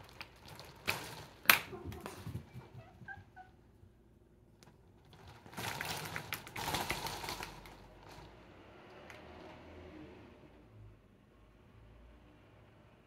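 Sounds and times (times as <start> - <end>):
cat chirping: 1.7 - 3.7.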